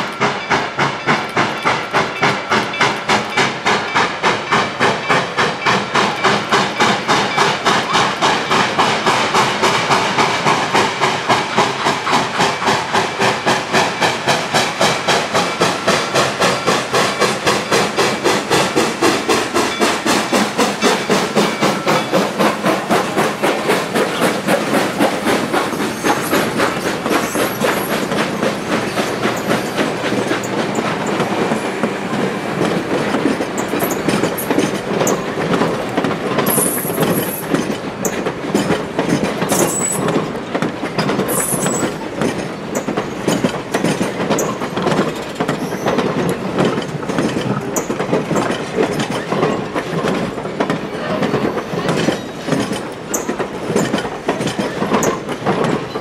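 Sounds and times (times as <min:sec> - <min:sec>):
train wheels clicking over rail joints: 0:00.0 - 0:56.0
wheel squeals: 0:25.7 - 0:31.2, 0:39.5 - 0:40.3, 0:41.0 - 0:50.0, 0:51.0 - 0:56.0.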